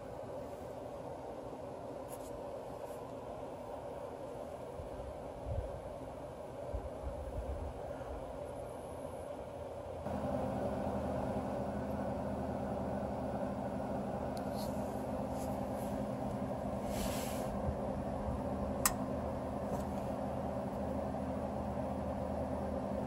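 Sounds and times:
steady mechanical hum: 0.0 - 23.0
short hissing rustles: 14.4 - 17.7.

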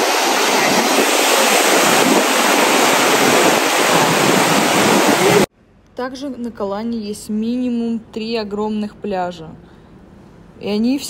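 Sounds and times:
waves breaking on beach: 0.0 - 5.5.

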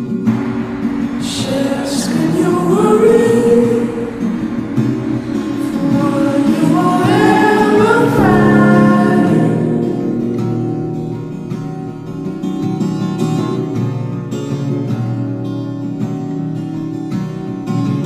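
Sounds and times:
quiet plucked notes: 0.0 - 14.2
sung vocal over soft instruments: 0.3 - 11.3.

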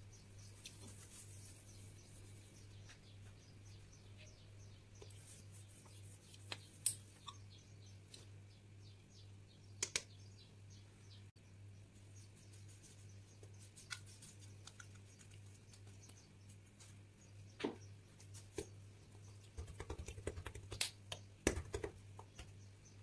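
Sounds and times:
fingers patting dough: 19.4 - 22.6.

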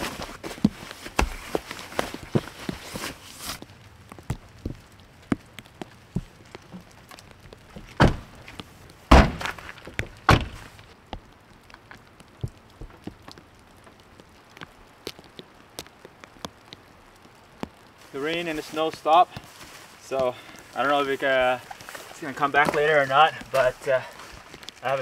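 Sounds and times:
car door thuds: 8.0 - 8.3, 9.1 - 9.5, 10.3 - 10.6.

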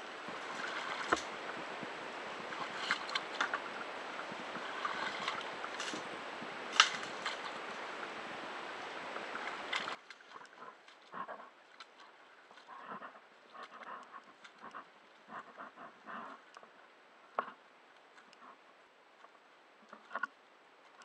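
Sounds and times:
hull bumping branches: 0.0 - 12.7
water sloshing around kayak: 0.0 - 16.5.

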